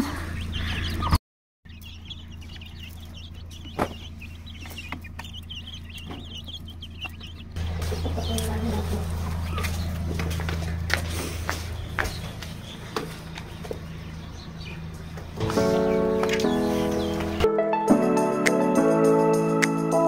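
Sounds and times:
chicks peeping: 0.0 - 17.5
steady low hum: 1.7 - 17.4.

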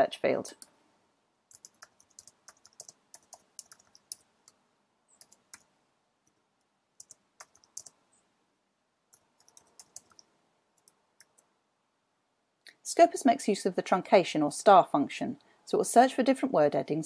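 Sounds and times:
faint keyboard typing: 0.5 - 0.8, 1.5 - 8.0, 9.1 - 11.5.

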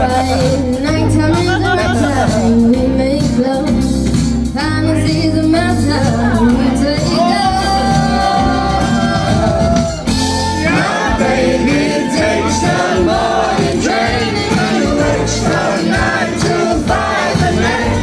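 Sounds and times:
woman singing pop song: 0.0 - 10.0
guitar accompaniment: 0.0 - 18.0.

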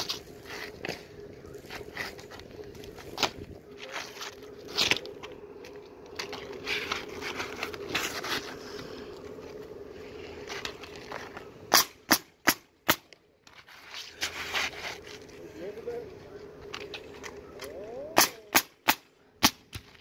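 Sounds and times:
shingles scraping and rustling: 0.0 - 11.6, 13.4 - 15.4
pneumatic nailer firing: 11.7 - 13.0.

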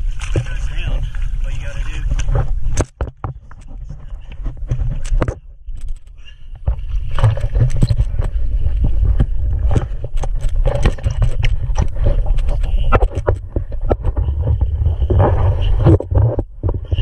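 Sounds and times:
steady low rumble: 0.0 - 17.0
water splashing against hull: 0.0 - 17.0.

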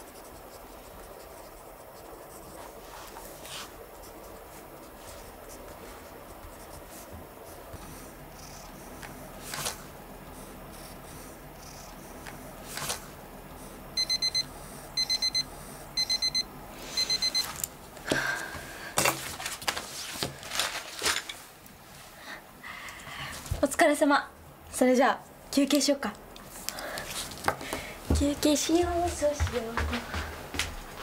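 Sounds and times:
book and papers rustling: 2.4 - 8.0, 19.1 - 22.0, 26.5 - 30.0
timer alarm beeping: 14.0 - 17.5.

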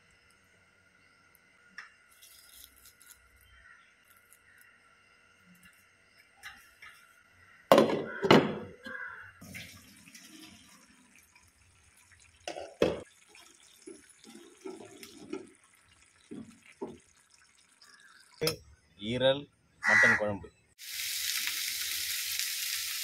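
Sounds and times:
liquid noise: 9.4 - 18.5.

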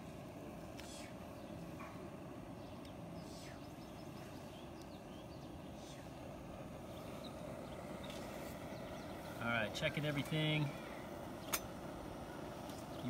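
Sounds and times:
stove burning with low roar: 0.0 - 13.0
faint bird chirps: 0.8 - 9.5.

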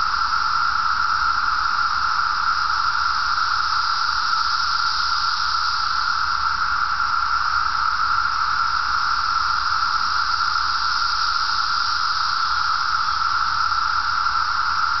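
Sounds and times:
cicadas buzzing drone: 0.0 - 15.0.

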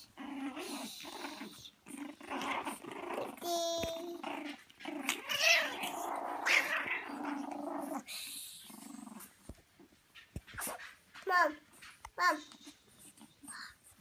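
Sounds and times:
puppies growling and whining: 0.0 - 10.9
puppy yelps: 5.2 - 7.1.

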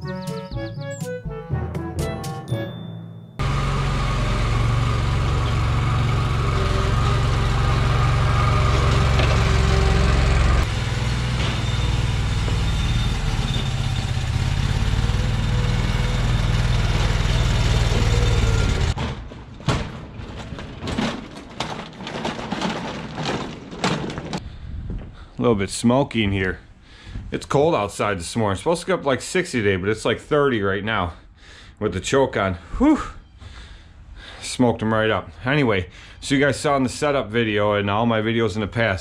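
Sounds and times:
riding mower engine running: 3.4 - 19.0
knocks and rattles of pushed machine: 3.4 - 24.4.

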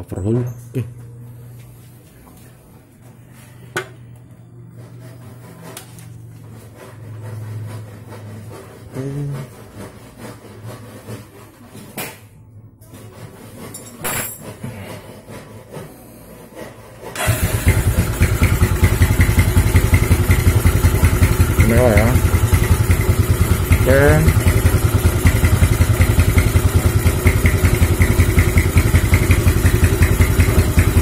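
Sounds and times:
motorcycle engine starting and running: 17.0 - 31.0.

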